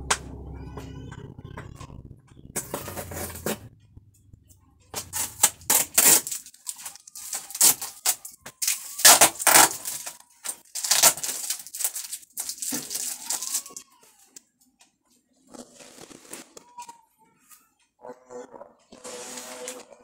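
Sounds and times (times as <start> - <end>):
cardboard tearing and rustling: 5.0 - 13.8.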